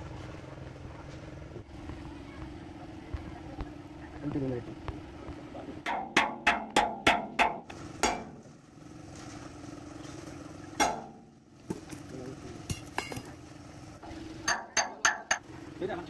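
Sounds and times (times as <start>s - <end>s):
steady low hum: 0.0s - 16.0s
hammer striking steel punch: 5.8s - 8.4s, 10.8s - 11.3s, 14.4s - 15.4s.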